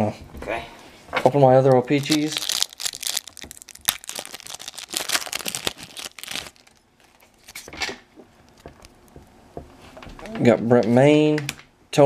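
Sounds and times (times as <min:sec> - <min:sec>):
foil wrapper crinkling and tearing: 0:01.6 - 0:07.7
cards rustling: 0:01.6 - 0:07.8.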